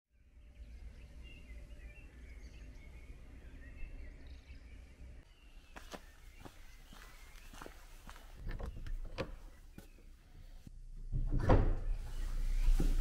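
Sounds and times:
birds singing faintly: 0:00.1 - 0:13.0.

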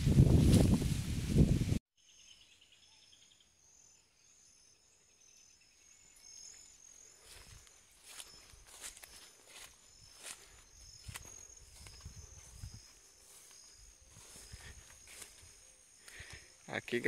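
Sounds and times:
insects chirping: 0:02.0 - 0:17.0.

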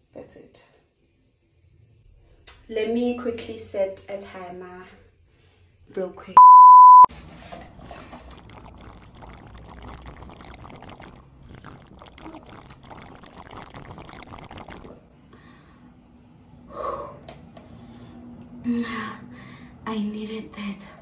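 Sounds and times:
drinking through bottle spout: 0:07.8 - 0:15.0
satisfied ahh breath: 0:15.3 - 0:16.0, 0:16.6 - 0:18.3.

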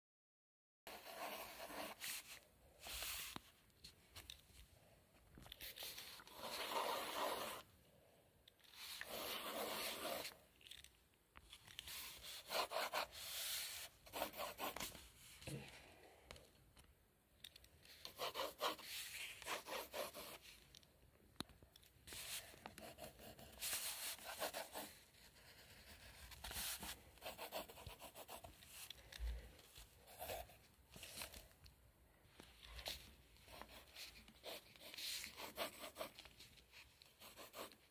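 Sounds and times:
pencil scratching on paper: 0:00.9 - 0:03.4, 0:05.6 - 0:07.7, 0:08.6 - 0:10.4, 0:11.8 - 0:15.0, 0:17.9 - 0:20.5, 0:22.1 - 0:28.8, 0:30.0 - 0:31.4, 0:32.8 - 0:37.9.

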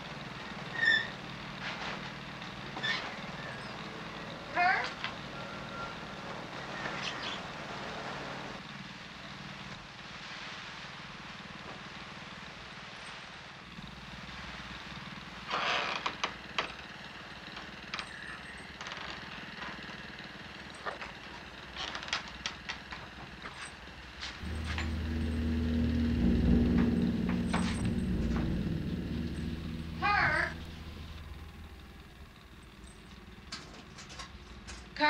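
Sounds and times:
low mechanical drone: 0:24.4 - 0:33.7
knocks and clatters: 0:24.4 - 0:34.2.

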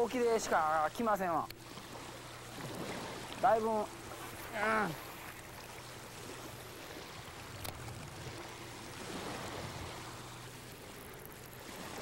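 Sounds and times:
lake water lapping: 0:00.0 - 0:12.0.

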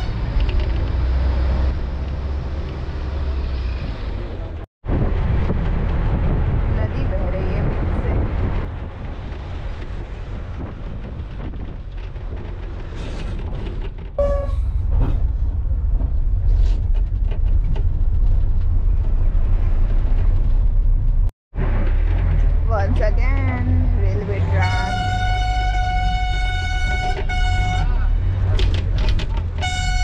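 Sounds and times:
vehicle horn: 0:00.0 - 0:00.2, 0:14.2 - 0:14.7, 0:24.6 - 0:28.2, 0:29.6 - 0:30.0
low vehicle rumble: 0:00.0 - 0:30.0.

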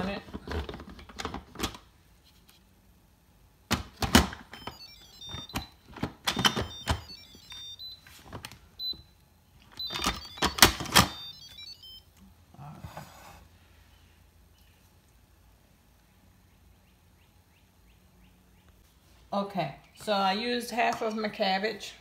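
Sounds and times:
high electronic tones: 0:04.2 - 0:08.2, 0:08.8 - 0:09.0, 0:09.8 - 0:12.1.

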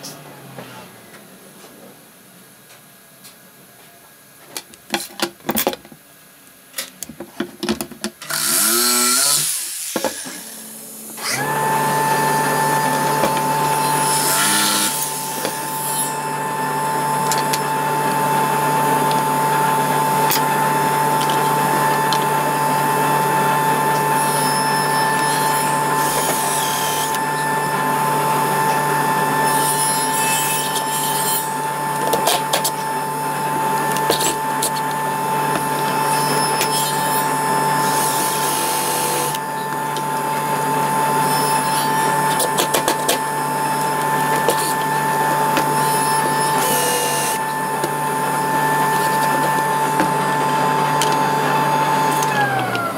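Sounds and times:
wood and tools knocking: 0:07.0 - 0:08.3
power tool motor running: 0:08.2 - 0:52.9.

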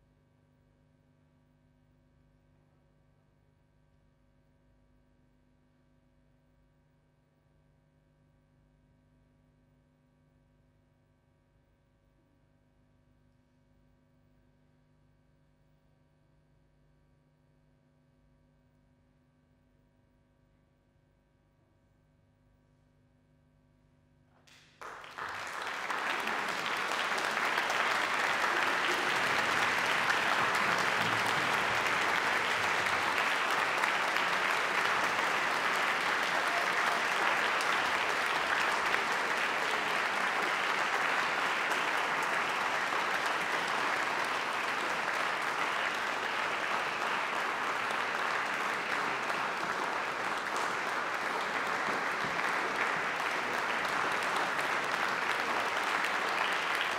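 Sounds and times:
audience applauding: 0:24.8 - 0:56.9.

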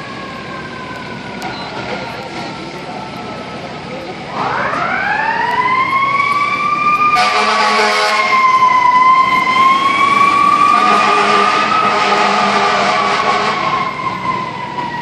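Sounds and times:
siren wailing: 0:00.0 - 0:15.0
low horn: 0:07.2 - 0:08.4, 0:10.7 - 0:13.8.

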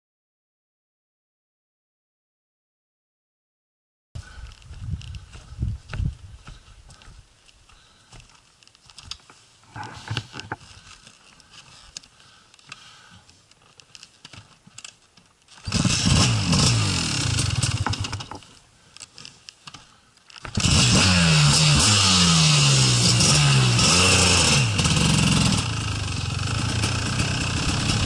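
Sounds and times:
light clicks and rustling: 0:08.2 - 0:15.6, 0:18.3 - 0:20.5
two-stroke motorcycle engine revving: 0:15.6 - 0:18.3, 0:20.5 - 0:28.0.

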